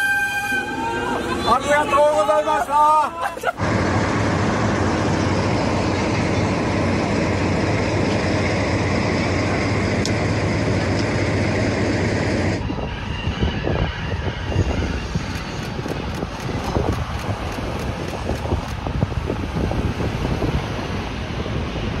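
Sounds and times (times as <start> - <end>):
diesel locomotive engine rumbling: 0.0 - 22.0
distant train running along line: 0.0 - 22.0
wind buffeting microphone: 3.6 - 22.0.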